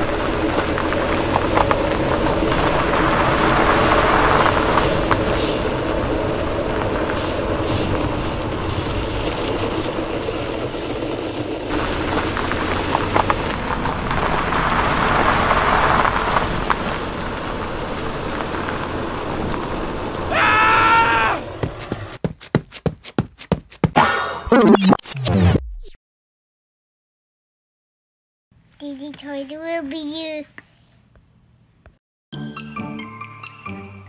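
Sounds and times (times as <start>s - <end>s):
short multi-tone sound: 24.0s - 26.0s.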